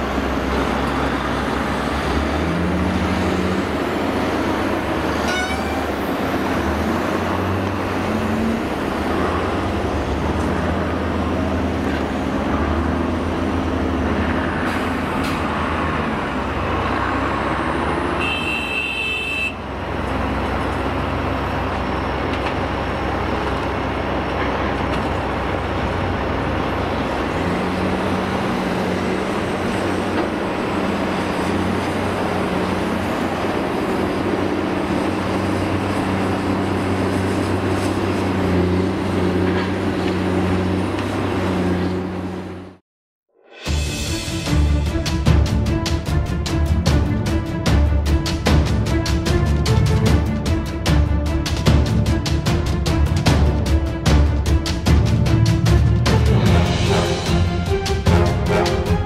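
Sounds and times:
diesel engines running: 0.0s - 42.8s, 43.7s - 59.0s
excavator digging and loading: 0.0s - 42.8s, 43.7s - 59.0s
horn blast: 5.1s - 6.2s, 18.2s - 19.6s, 55.1s - 59.0s.

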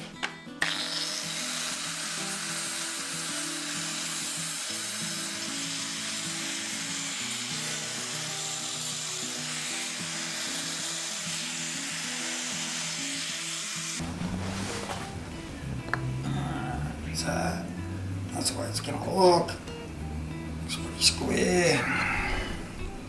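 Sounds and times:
background music: 0.0s - 23.0s
angle grinder cutting steel: 0.6s - 14.3s.

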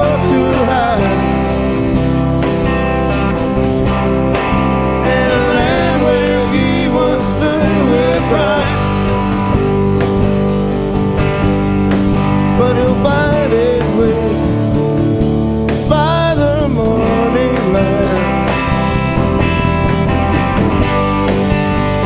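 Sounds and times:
man singing lead: 0.0s - 1.6s, 4.9s - 9.2s, 12.4s - 14.8s, 15.8s - 18.6s
live rock band: 0.0s - 22.0s.

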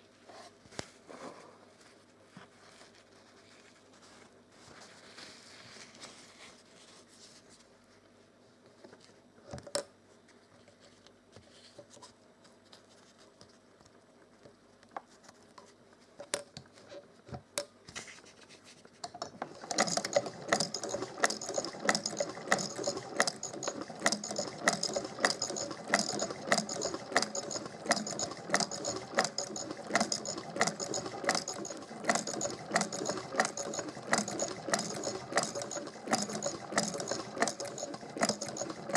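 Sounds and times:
sewing machine clattering: 19.2s - 38.9s.

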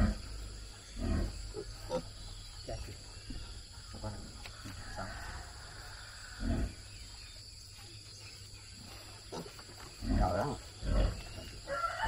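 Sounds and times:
pigs grunting: 0.0s - 4.4s, 6.1s - 7.1s, 8.8s - 11.7s.

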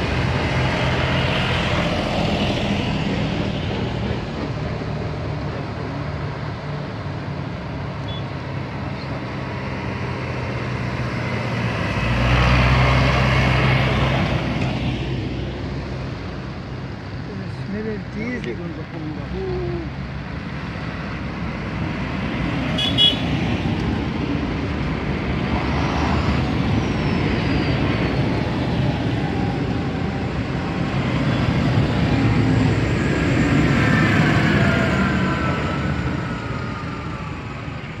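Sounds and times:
tractors driving past: 0.0s - 38.0s
tyres on road: 0.0s - 38.0s.

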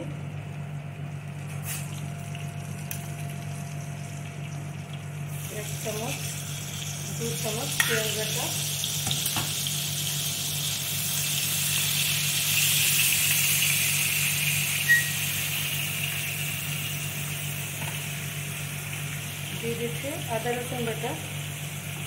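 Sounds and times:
paste sizzling in oil: 5.3s - 22.0s.

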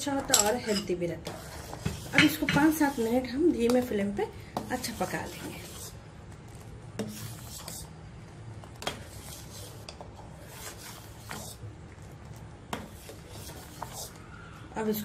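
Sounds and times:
metal ladle scraping steel pot: 0.3s - 3.2s.

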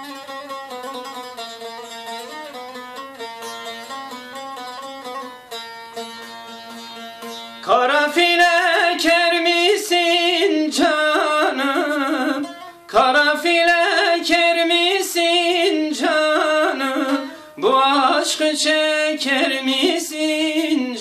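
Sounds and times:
strummed saz: 0.0s - 21.0s
man singing folk melody: 7.6s - 21.0s.

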